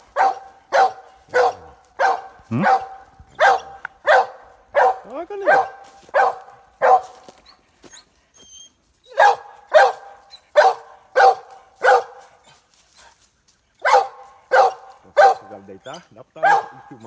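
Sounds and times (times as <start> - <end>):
dog barking: 0.0 - 7.4, 9.1 - 12.6, 13.8 - 17.0.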